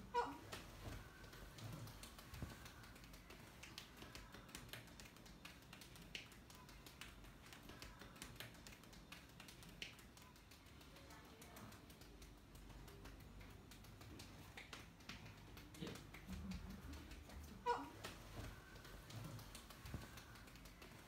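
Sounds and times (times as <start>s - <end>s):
hands patting a back: 0.0s - 21.0s.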